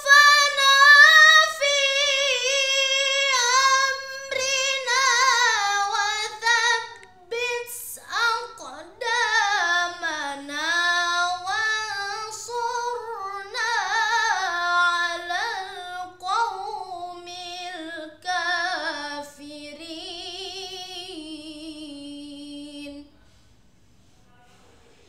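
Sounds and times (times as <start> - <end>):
boy chanting melodic recitation: 0.0 - 23.1.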